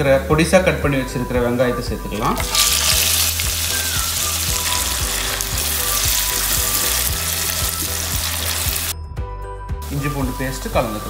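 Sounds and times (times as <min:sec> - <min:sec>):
onions sizzling in oil: 0:02.2 - 0:09.0.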